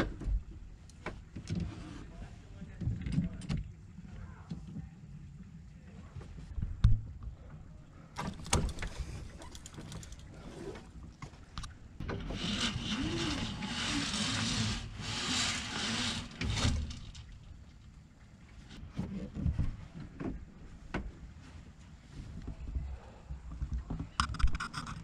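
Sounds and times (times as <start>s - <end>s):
rope rasping: 12.2s - 17.2s.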